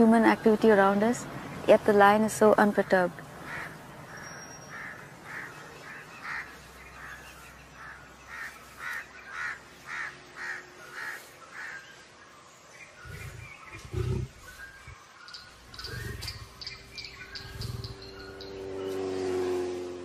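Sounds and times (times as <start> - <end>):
crows cawing: 3.4 - 11.9
deep lion grunt: 13.0 - 14.5, 15.8 - 16.5, 17.4 - 18.0.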